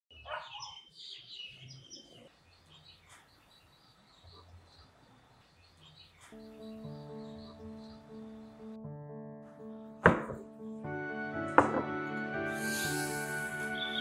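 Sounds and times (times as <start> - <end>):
faint birds chirping: 0.1 - 10.0, 12.6 - 14.0
music: 6.4 - 14.0.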